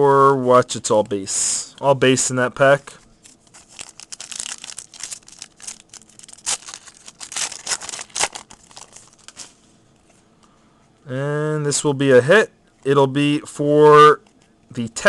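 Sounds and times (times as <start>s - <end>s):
foil wrapper tearing and crinkling: 3.4s - 9.6s.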